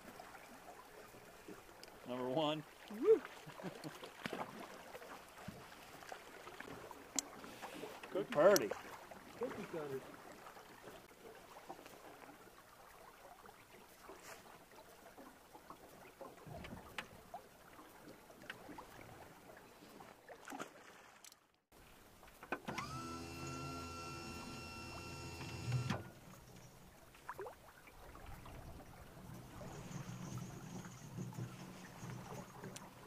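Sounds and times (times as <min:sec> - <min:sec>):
small motor whining: 0:22.6 - 0:26.2.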